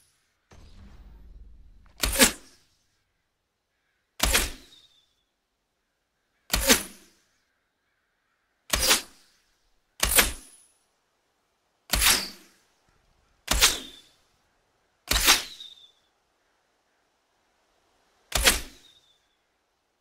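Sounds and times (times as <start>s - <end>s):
arrow whooshing past: 0.5s - 2.8s.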